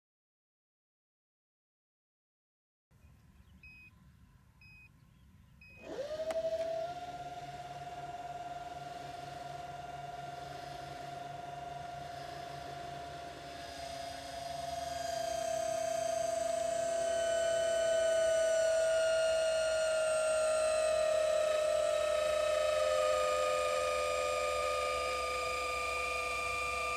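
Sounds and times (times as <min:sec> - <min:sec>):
electric motor whining: 0:05.7 - 0:26.9.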